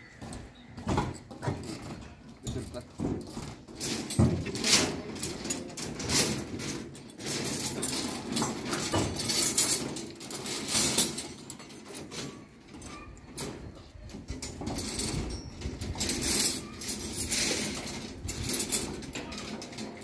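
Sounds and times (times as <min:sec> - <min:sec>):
steel bars clinking and scraping: 0:01.2 - 0:20.0.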